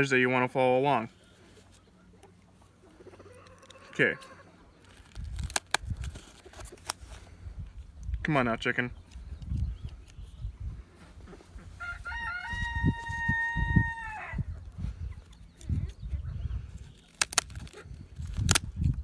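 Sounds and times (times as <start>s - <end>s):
chicken calling: 1.2s - 4.9s, 11.0s - 16.4s
scissors snipping feathers: 17.0s - 19.0s.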